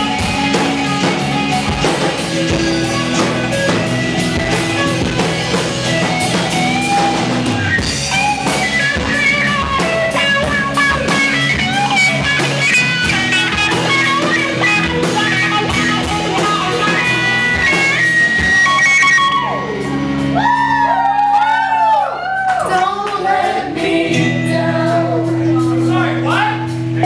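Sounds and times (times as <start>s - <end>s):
drums and cymbals: 0.0s - 20.5s
bass guitar: 0.0s - 27.0s
electric guitar melody: 0.0s - 27.0s.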